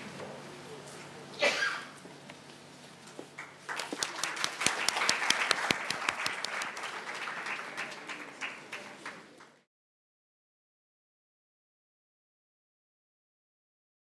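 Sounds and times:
audience applauding: 3.4s - 9.7s.

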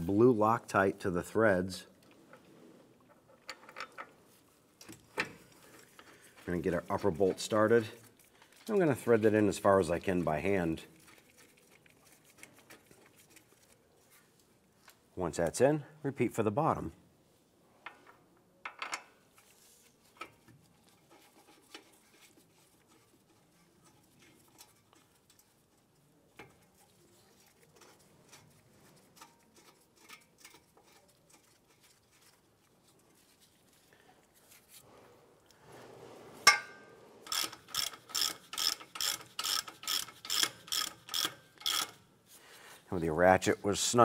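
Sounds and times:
ratchet wrench clicking: 37.3s - 42.0s.

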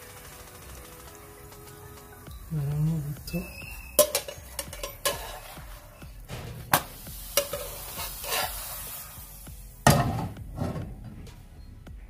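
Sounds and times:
light sizzle of frying: 1.5s - 9.9s
metal spatula scraping a pan: 3.7s - 9.1s.

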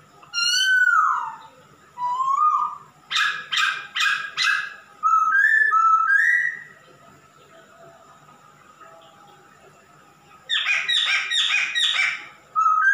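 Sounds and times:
bird whistled notes: 2.0s - 6.7s, 10.5s - 12.9s.

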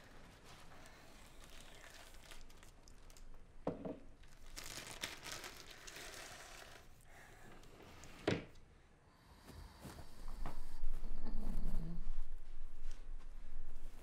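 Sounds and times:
crinkling: 0.0s - 7.0s.

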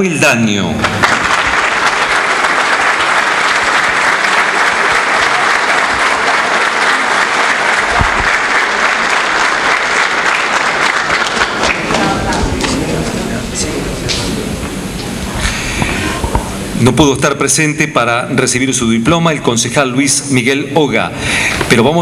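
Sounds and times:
audience applause: 0.8s - 16.6s.

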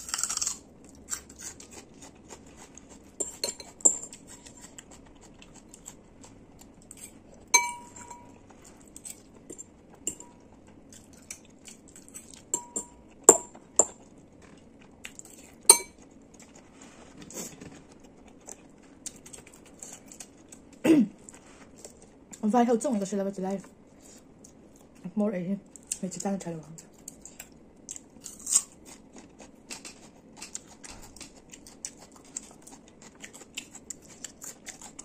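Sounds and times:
metal spoon clinking on bowl: 3.2s - 4.2s, 7.6s - 8.4s, 10.1s - 10.4s, 12.5s - 14.0s, 15.7s - 16.0s.

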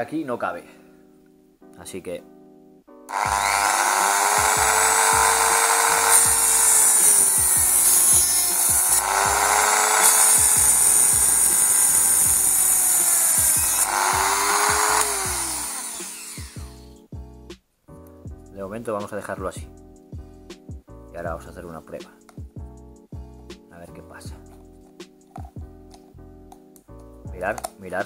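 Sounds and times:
power tool cutting plastic: 3.1s - 17.0s.

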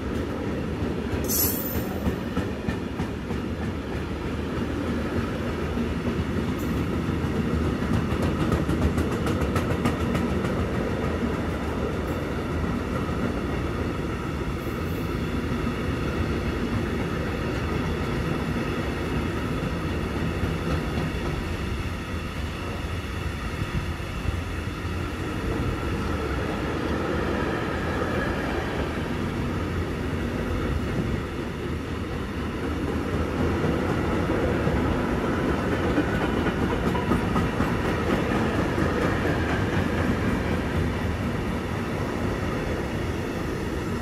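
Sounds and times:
train wheels on rails: 0.0s - 44.0s.

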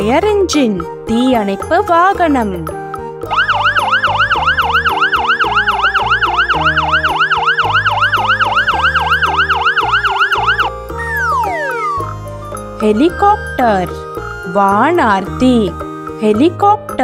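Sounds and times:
fire engine siren wailing: 3.3s - 12.4s.

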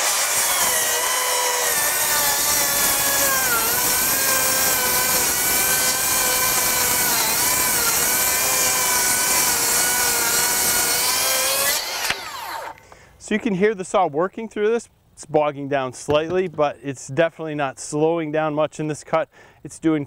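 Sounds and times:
circular saw cutting wood: 0.0s - 12.8s.

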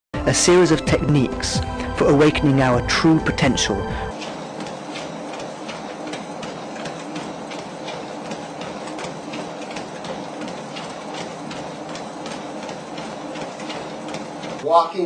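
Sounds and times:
treadmill humming: 0.3s - 15.0s
footfalls on treadmill belt: 4.1s - 14.9s.

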